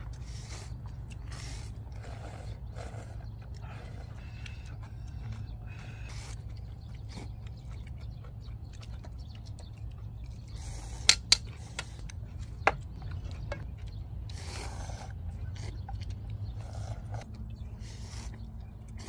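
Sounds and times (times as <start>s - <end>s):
steady low rumble: 0.0s - 19.0s
people slurping noodles: 0.2s - 6.4s.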